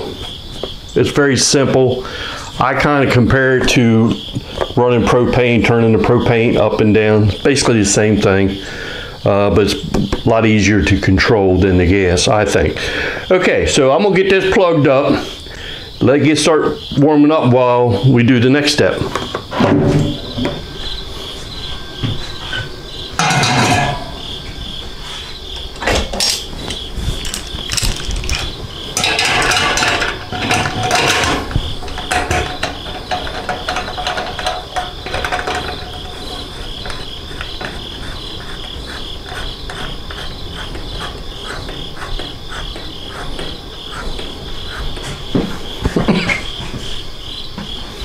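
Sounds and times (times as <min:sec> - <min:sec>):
metal lid clinking and scraping: 0:19.5 - 0:24.8, 0:25.8 - 0:37.8
high repeating chirp: 0:20.6 - 0:25.7.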